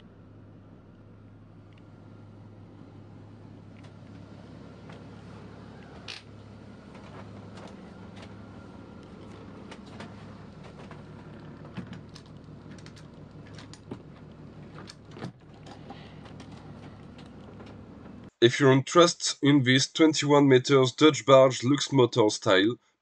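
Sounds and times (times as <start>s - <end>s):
diesel engine low hum: 0.0s - 21.8s
clicks and creaks: 9.0s - 18.3s.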